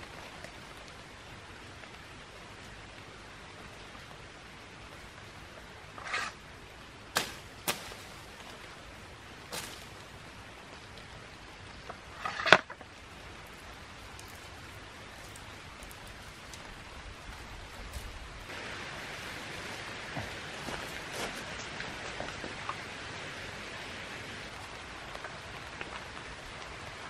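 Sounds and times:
background hiss: 0.0 - 27.0
twigs snapping and rustling: 7.1 - 10.2, 11.8 - 18.6.

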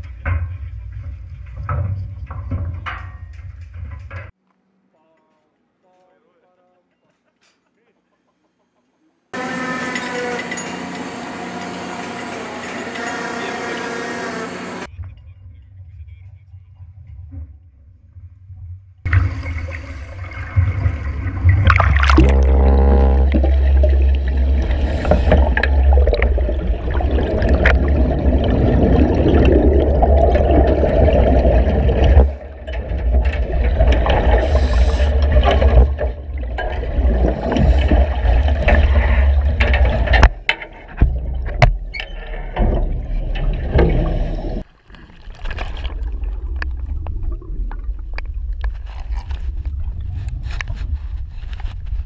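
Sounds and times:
underwater low rumble: 15.2 - 52.0
air bubbling through water: 19.1 - 32.5.

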